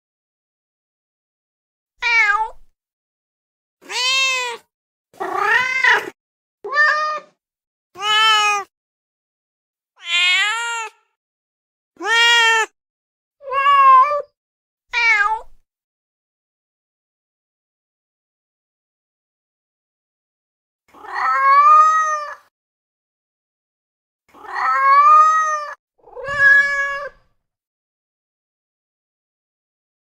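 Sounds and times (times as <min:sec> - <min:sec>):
cat meowing: 0:02.0 - 0:02.7, 0:03.8 - 0:07.4, 0:08.0 - 0:08.7, 0:10.0 - 0:11.1, 0:12.0 - 0:12.7, 0:13.4 - 0:14.3, 0:14.9 - 0:15.6, 0:20.9 - 0:22.5, 0:24.4 - 0:27.3.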